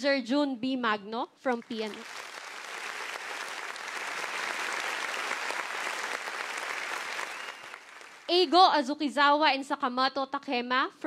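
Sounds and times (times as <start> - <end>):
audience applauding: 1.6 - 8.4.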